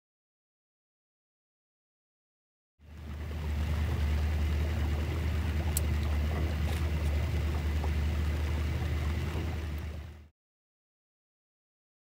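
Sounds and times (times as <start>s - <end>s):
outboard motor humming: 2.8s - 10.3s.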